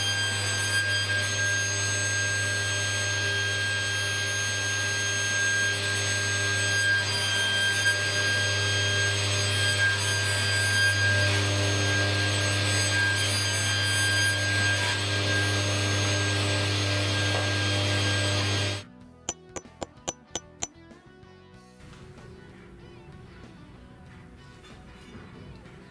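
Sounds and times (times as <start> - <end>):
table saw running: 0.0 - 18.8.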